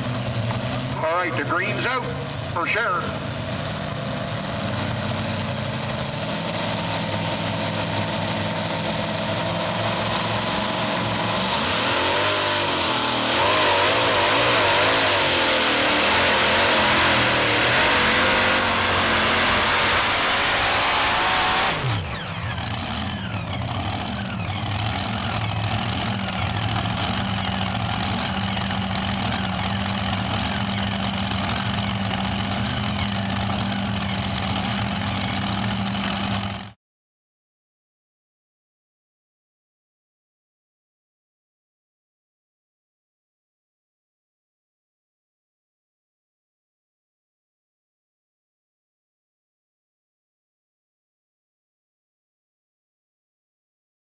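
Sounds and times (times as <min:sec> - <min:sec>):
tractor engines revving and idling: 0:00.0 - 0:36.8.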